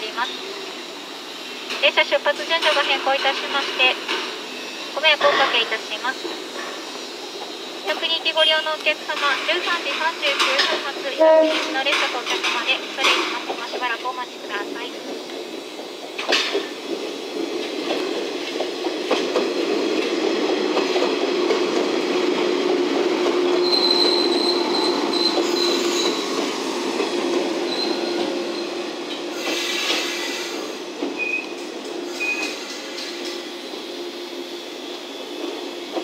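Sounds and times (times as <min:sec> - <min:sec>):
electric train rolling: 0:00.0 - 0:36.0
high wheel squeal: 0:23.6 - 0:26.5, 0:27.6 - 0:33.2.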